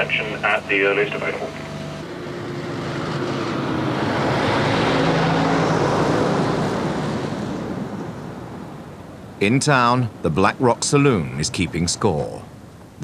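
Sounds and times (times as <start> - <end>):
truck driving past: 0.7 - 9.1.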